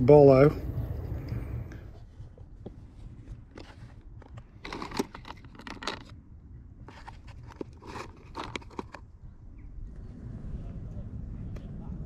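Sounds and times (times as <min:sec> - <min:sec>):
plastic tools rattling in box: 0:03.5 - 0:06.1, 0:06.9 - 0:09.0.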